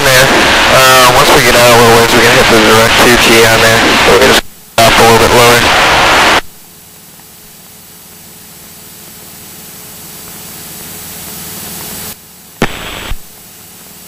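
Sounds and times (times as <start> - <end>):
static burst: 0.0 - 6.9, 11.0 - 13.5
radio and intercom hiss: 0.0 - 13.7.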